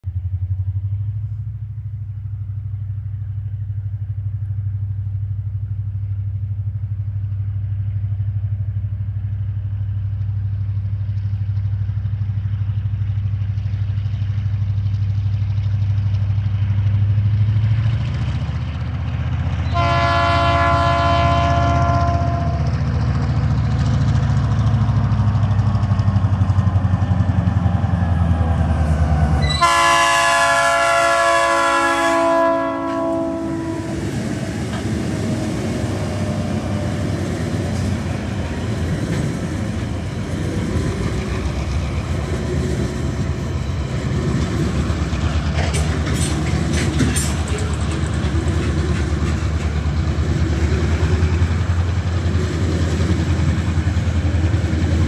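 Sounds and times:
locomotive engine rumble: 0.0 - 55.0
wheels clattering on rails: 9.2 - 19.8, 21.9 - 29.7, 32.8 - 55.0
train horn: 19.6 - 22.8, 29.4 - 34.2.

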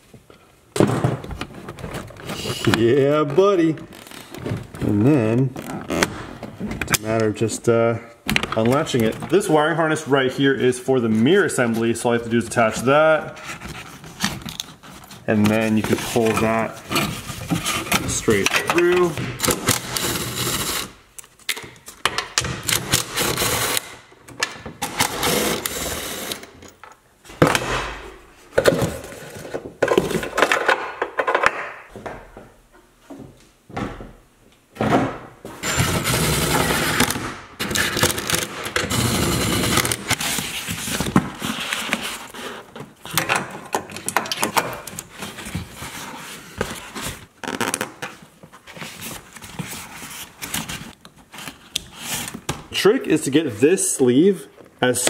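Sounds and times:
tools and parts clattering: 28.5 - 31.9.

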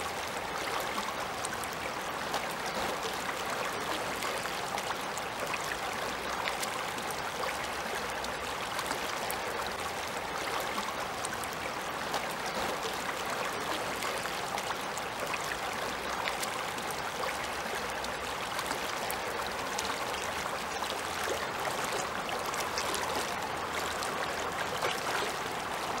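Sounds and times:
river rushing over stones: 17.7 - 26.0.

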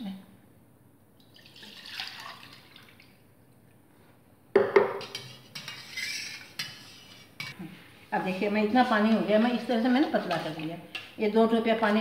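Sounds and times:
water poured into steel pan: 1.3 - 3.0.

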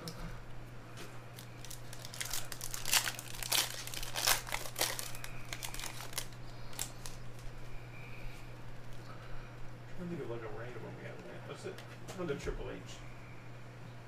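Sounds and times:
foil wrapper crinkling and tearing: 1.3 - 7.6.

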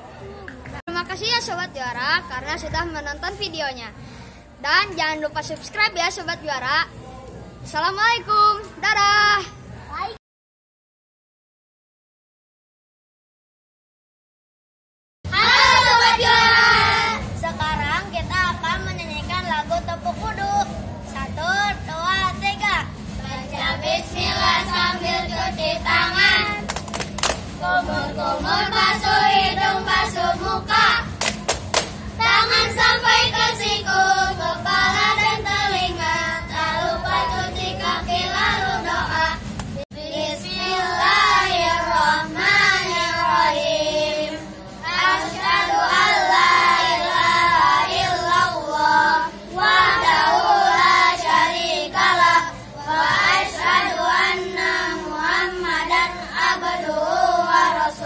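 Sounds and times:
children singing in unison: 15.3 - 17.5, 23.3 - 26.7, 27.6 - 31.1, 32.2 - 39.4, 40.0 - 58.0
sharp hand claps: 26.6 - 27.6, 31.2 - 32.1, 39.5 - 39.8.

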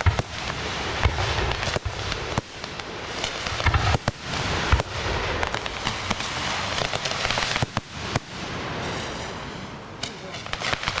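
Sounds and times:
fireworks bangs: 0.0 - 11.0
fireworks crackle: 0.0 - 11.0.

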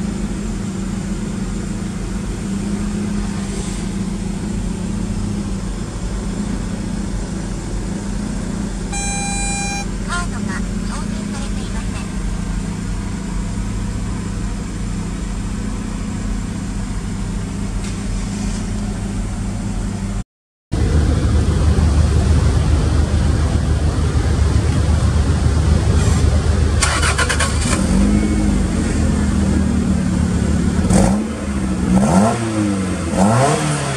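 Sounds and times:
car engine idling: 0.0 - 18.1, 18.7 - 33.2.

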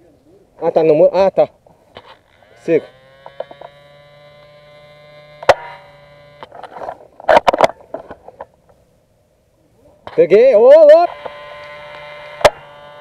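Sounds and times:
steady electrical hum: 0.0 - 13.0
airsoft rifle shot: 5.4 - 5.8, 12.2 - 12.7.

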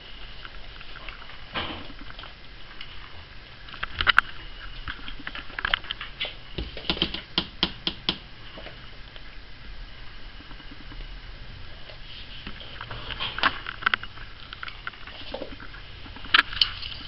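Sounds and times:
kittens' paws clicking and tapping: 3.8 - 8.3.

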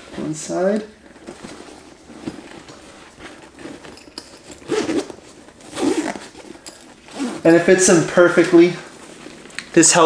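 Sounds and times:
zipper being pulled: 1.2 - 8.4.

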